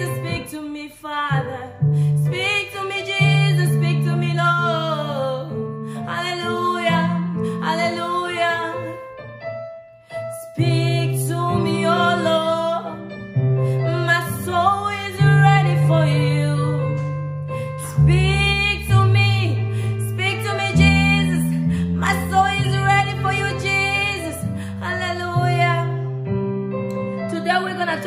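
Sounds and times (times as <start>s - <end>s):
woman singing worship song: 0.0s - 9.0s, 10.4s - 13.0s, 13.9s - 17.1s, 17.8s - 26.0s, 27.3s - 28.0s.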